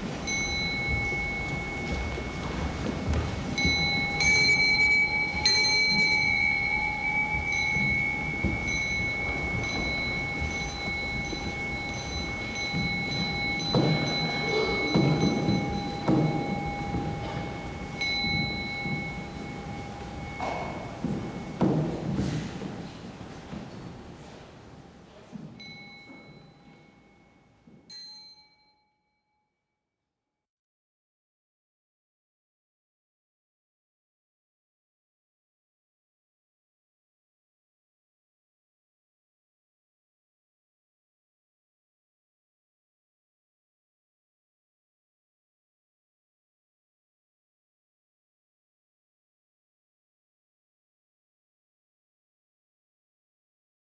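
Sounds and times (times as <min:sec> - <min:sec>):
metal bell struck: 0:00.2 - 0:02.6, 0:03.6 - 0:22.1, 0:25.6 - 0:29.4.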